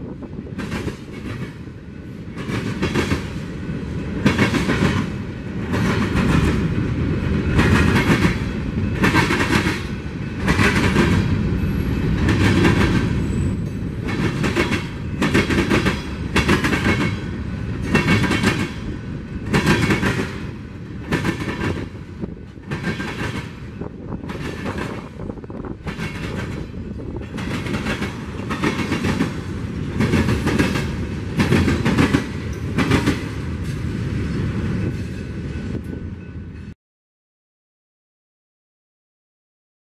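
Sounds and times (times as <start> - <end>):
train low rumble: 0.0 - 36.8
steel wheels clacking over rail joints: 7.5 - 34.0.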